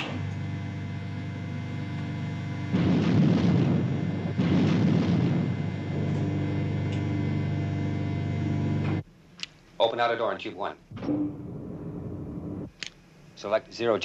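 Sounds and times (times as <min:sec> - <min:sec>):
torpedo rumbling along rack: 0:00.0 - 0:09.0
low machinery hum: 0:00.0 - 0:14.0.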